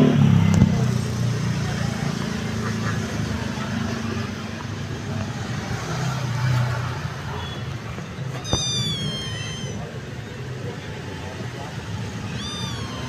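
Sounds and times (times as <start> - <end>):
kitten meowing: 8.4 - 10.2, 12.0 - 13.0.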